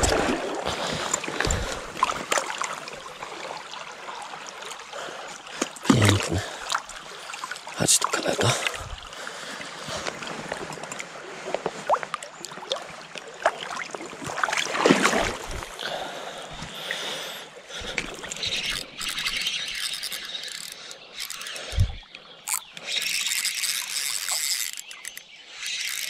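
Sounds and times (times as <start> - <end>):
loud water splash: 0.0 - 0.7, 14.4 - 15.5
river water splashing: 0.0 - 26.0.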